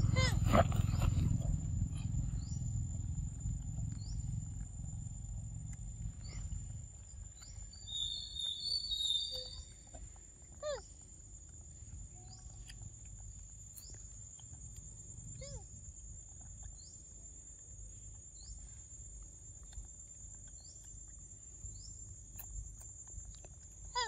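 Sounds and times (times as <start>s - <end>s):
low rumble: 0.0s - 7.4s
bird chirping: 0.0s - 11.0s, 11.8s - 14.4s
insects droning: 0.0s - 24.0s.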